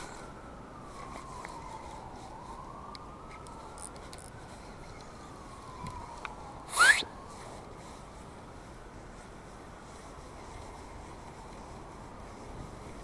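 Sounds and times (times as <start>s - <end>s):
siren wailing: 0.0s - 7.9s
sharp upward sweeping sound: 6.7s - 7.2s.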